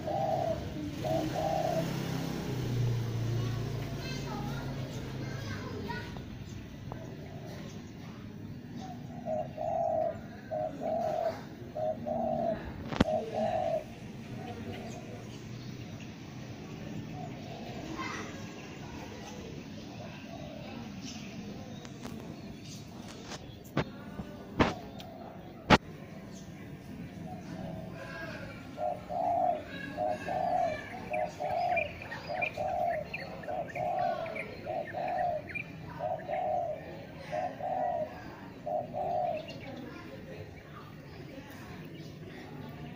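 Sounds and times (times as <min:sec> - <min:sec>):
dove cooing: 0:00.0 - 0:07.8, 0:08.7 - 0:15.3, 0:17.0 - 0:18.4, 0:19.9 - 0:20.9, 0:24.6 - 0:25.8, 0:27.1 - 0:41.0
small birds chirping: 0:00.0 - 0:42.9.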